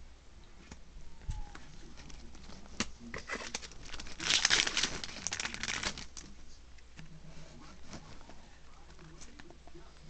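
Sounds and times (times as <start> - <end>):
foil pack crinkling and tearing: 1.8 - 6.4.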